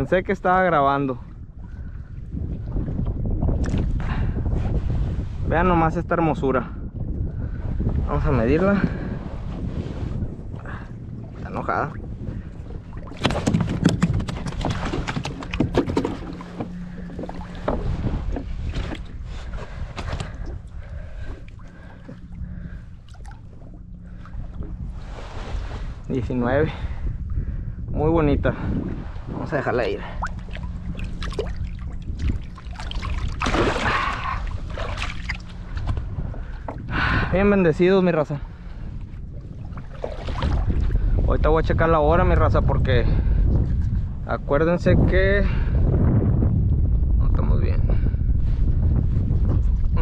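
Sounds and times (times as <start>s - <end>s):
wind on microphone: 0.0s - 50.0s
water splashing and trickling: 10.6s - 26.0s, 29.8s - 37.1s, 39.4s - 41.1s
fish thrashing against kayak hull: 13.0s - 25.0s, 30.2s - 36.9s, 39.4s - 41.0s
faint steady hum: 15.4s - 28.0s, 28.7s - 41.2s.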